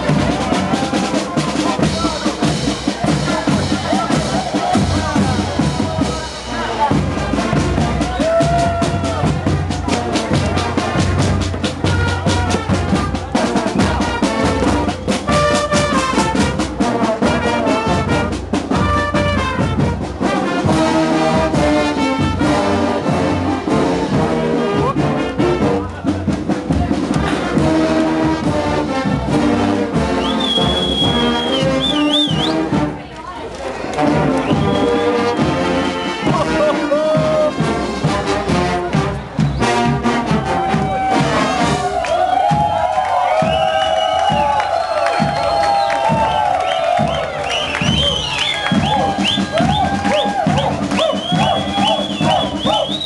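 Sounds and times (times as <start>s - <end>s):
fast steady drum beat: 0.0s - 28.7s, 34.2s - 53.0s
marching brass band playing: 0.0s - 53.0s
high whistle: 30.2s - 32.6s, 34.4s - 36.3s, 43.4s - 53.0s.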